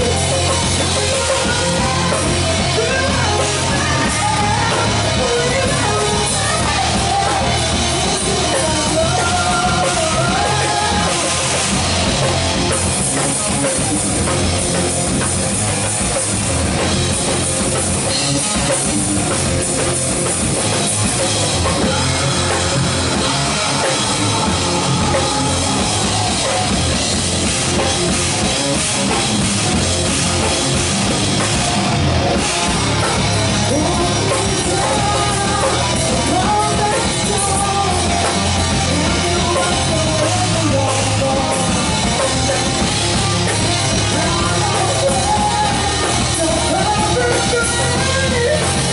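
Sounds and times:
woman singing lead vocal: 0:00.0 - 0:11.8, 0:21.7 - 0:27.0, 0:33.5 - 0:42.8, 0:43.5 - 0:48.9
heavy metal band playing: 0:00.0 - 0:48.9.

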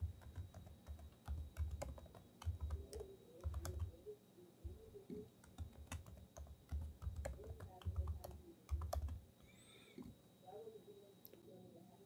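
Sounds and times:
typing on computer keyboard: 0:00.0 - 0:04.0, 0:05.4 - 0:09.2.

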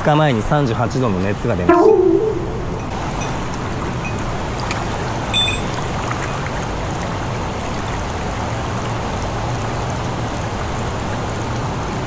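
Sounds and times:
brief high ringing ting: 0:01.7 - 0:03.0
stream running: 0:02.9 - 0:12.0.

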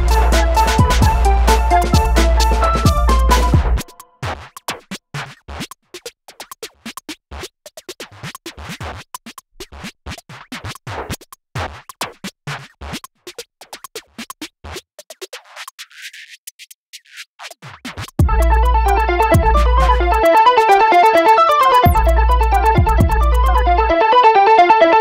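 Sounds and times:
glitchy electronic music: 0:00.0 - 0:04.1, 0:17.4 - 0:24.8.

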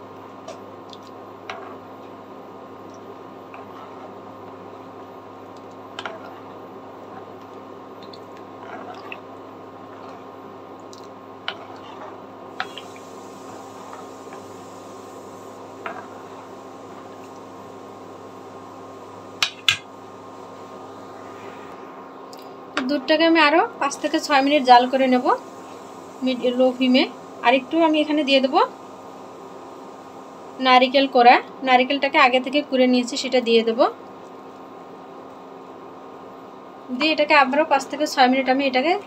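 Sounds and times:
steady low hum: 0:00.0 - 0:39.0
wet squishing of stirred noodles: 0:05.4 - 0:14.5.

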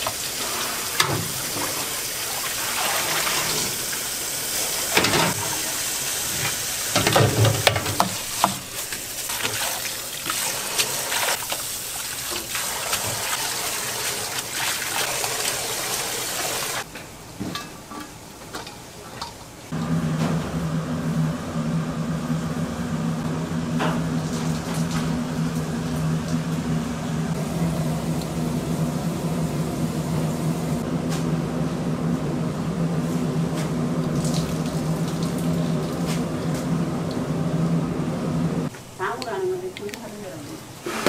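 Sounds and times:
water running hard: 0:00.0 - 0:16.9, 0:19.7 - 0:30.8, 0:32.9 - 0:38.7
steady motor hum: 0:19.7 - 0:38.7.

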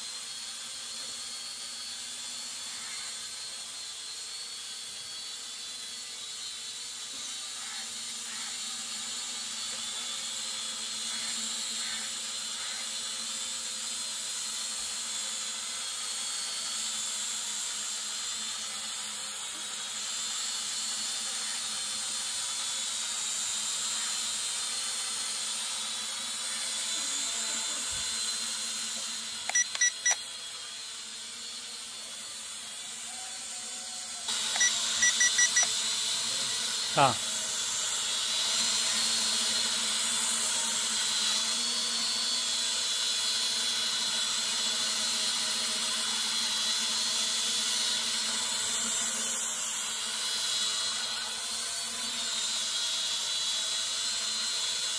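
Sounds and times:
drone propellers whining: 0:00.0 - 0:54.9
short electronic beeps: 0:29.5 - 0:30.2, 0:34.5 - 0:35.7.

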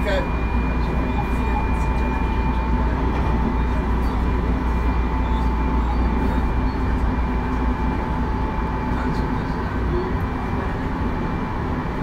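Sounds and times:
electric train humming: 0:00.0 - 0:12.0.

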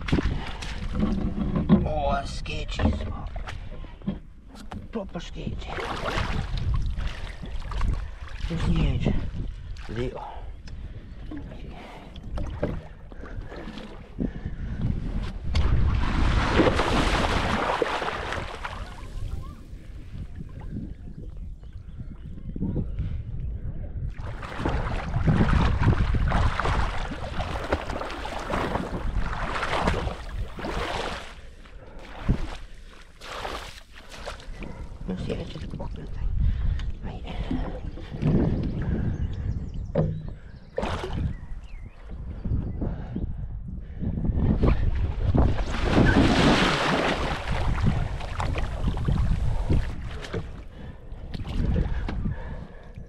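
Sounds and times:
water splashing and sloshing: 0:00.0 - 0:21.5, 0:24.1 - 0:42.2, 0:44.7 - 0:53.0
wind buffeting microphone: 0:00.0 - 0:32.8, 0:34.3 - 0:53.0.

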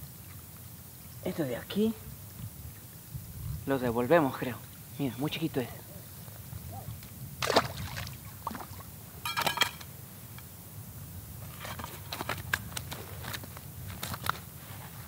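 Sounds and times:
wind rumble on microphone: 0:02.0 - 0:04.2, 0:05.9 - 0:09.1
fish splashing into water: 0:07.4 - 0:08.9.

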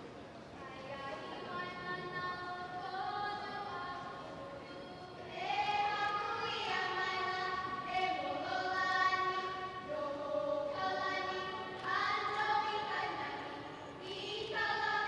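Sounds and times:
girls chanting in unison: 0:05.2 - 0:15.0.

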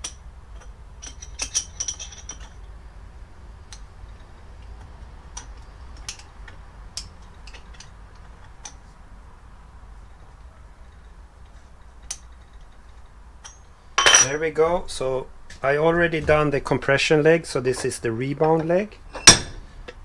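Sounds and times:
spanner metallic clicks and ticks: 0:03.6 - 0:08.8, 0:12.0 - 0:12.7.

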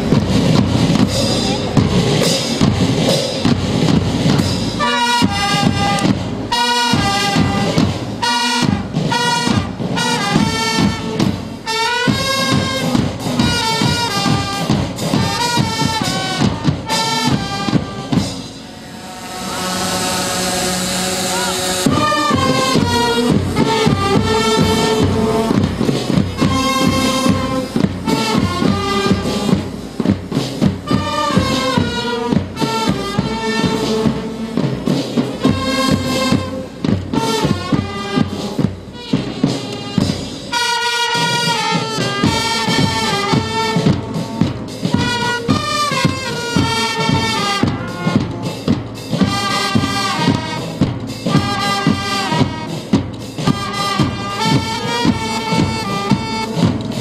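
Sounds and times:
brass instruments playing melody: 0:00.0 - 0:57.0
side drums marching rhythm: 0:00.0 - 0:57.0.

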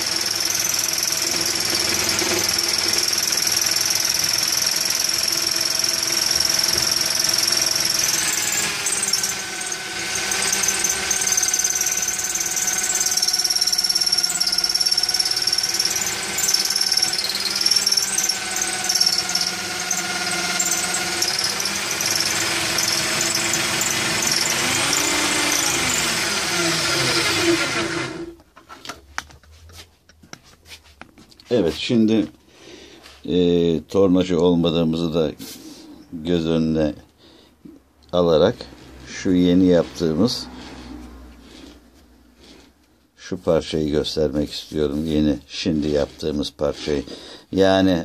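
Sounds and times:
electric drill whining: 0:00.0 - 0:28.4.

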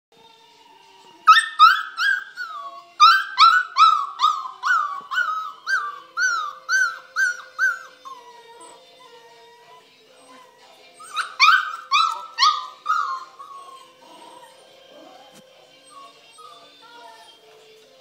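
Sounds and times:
puppy howling and yelping: 0:01.2 - 0:17.4.

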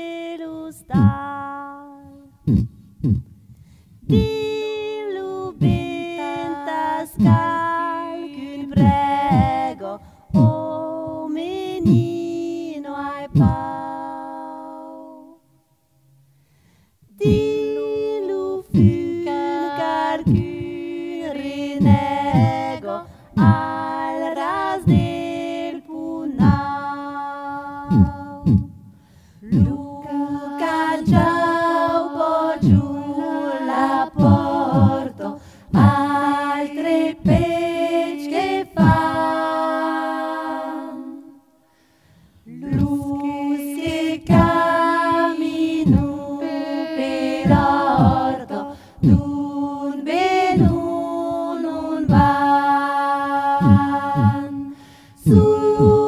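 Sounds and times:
women singing polyphony: 0:00.0 - 0:02.8, 0:04.0 - 0:16.0, 0:17.0 - 0:56.0
low drum beats: 0:00.9 - 0:01.3, 0:02.4 - 0:03.4, 0:04.0 - 0:04.6, 0:05.5 - 0:06.4, 0:07.1 - 0:07.8, 0:08.7 - 0:10.8, 0:11.8 - 0:12.4, 0:13.3 - 0:13.7, 0:17.2 - 0:20.9, 0:21.7 - 0:24.0, 0:24.8 - 0:25.6, 0:26.3 - 0:26.8, 0:27.9 - 0:33.4, 0:34.1 - 0:36.2, 0:37.2 - 0:38.0, 0:38.7 - 0:39.4, 0:42.6 - 0:43.2, 0:43.9 - 0:46.4, 0:47.0 - 0:49.4, 0:50.2 - 0:51.4, 0:52.0 - 0:52.6, 0:53.5 - 0:54.6, 0:55.2 - 0:56.0.

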